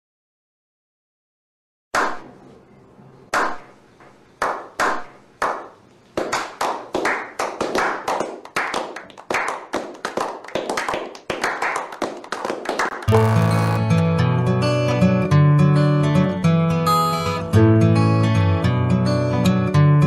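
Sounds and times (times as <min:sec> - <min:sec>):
group clapping: 0:02.0 - 0:02.3, 0:03.3 - 0:03.7, 0:04.4 - 0:13.7.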